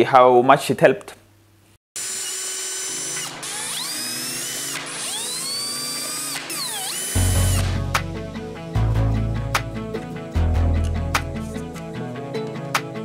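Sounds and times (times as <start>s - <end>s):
cordless drill driving screws: 2.0s - 7.8s
music: 2.8s - 13.0s.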